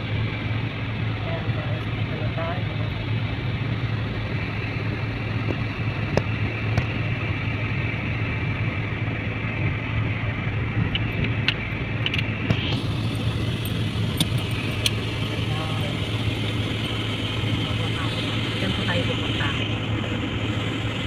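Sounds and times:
car cabin road noise: 0:00.0 - 0:21.0.

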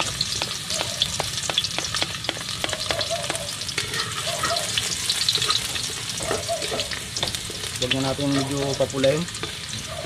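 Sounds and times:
garlic sizzling in hot oil: 0:00.0 - 0:10.0
utensil scraping a pan: 0:02.4 - 0:09.8.

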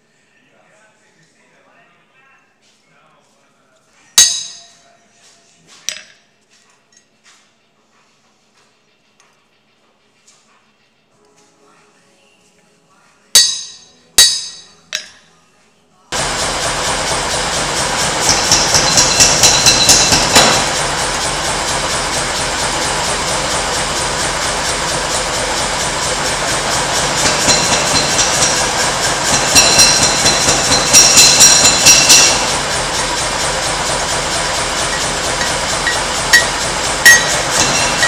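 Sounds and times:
steady roaring noise: 0:25.6 - 0:38.0.

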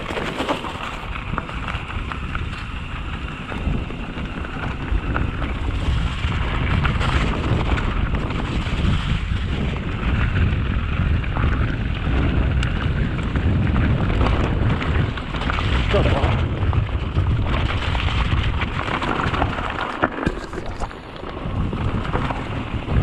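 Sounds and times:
bike knocking over rough ground: 0:00.0 - 0:02.8, 0:11.4 - 0:23.0
bike tyres rolling on dirt: 0:00.0 - 0:23.0
wind buffeting microphone: 0:00.0 - 0:23.0.

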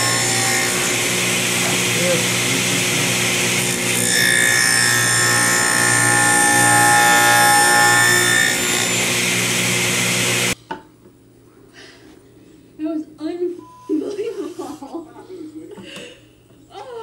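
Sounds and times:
table saw cutting wood: 0:00.0 - 0:10.6.

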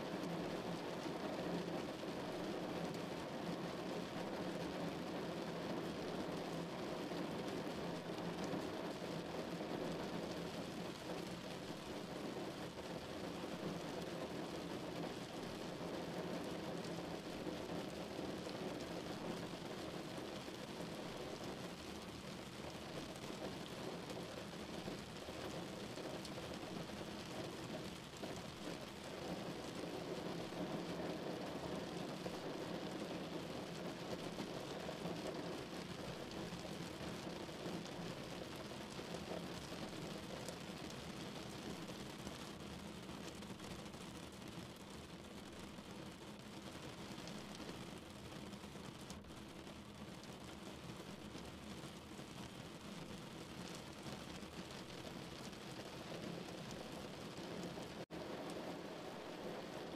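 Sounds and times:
rain on car roof: 0:00.0 - 0:59.9.

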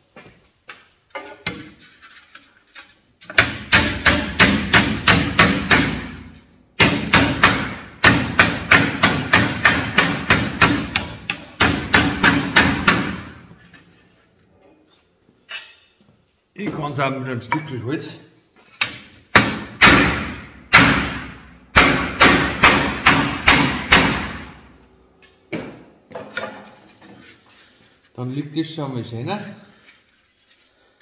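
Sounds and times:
wooden mallet knocking sheet metal: 0:03.3 - 0:13.5, 0:18.8 - 0:24.6.

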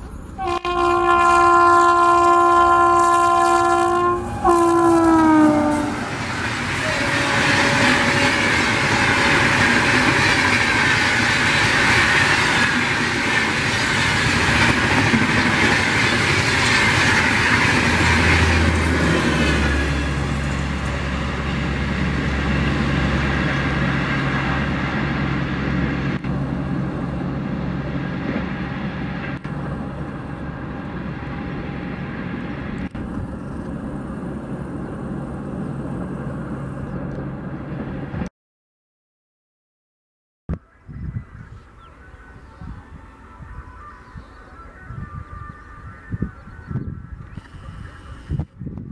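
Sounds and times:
passenger train rushing past: 0:00.0 - 0:38.3.

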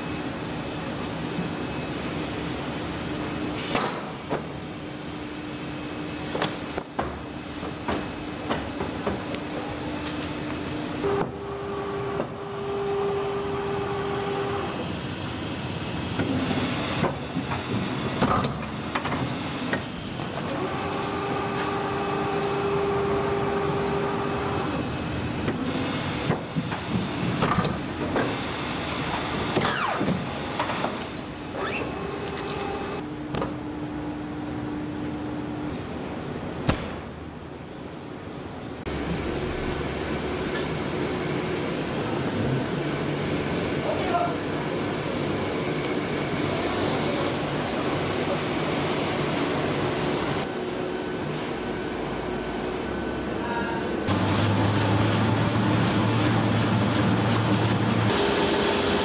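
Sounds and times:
machine hum: 0:38.8 - 0:59.0.

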